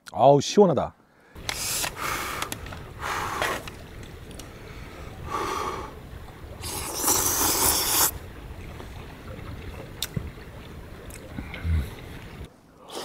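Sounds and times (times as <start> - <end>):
person slurping noodles: 6.6 - 8.1.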